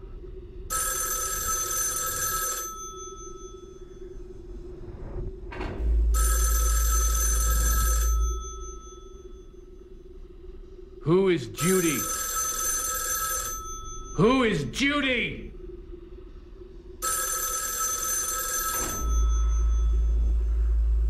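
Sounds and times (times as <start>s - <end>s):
low steady drone: 0.0s - 1.6s, 2.7s - 11.8s, 13.6s - 17.3s, 18.8s - 21.0s
telephone bell ringing: 0.7s - 4.1s, 6.1s - 9.6s, 11.6s - 14.8s, 17.0s - 20.4s
deep rumble: 3.6s - 11.0s, 19.1s - 21.0s.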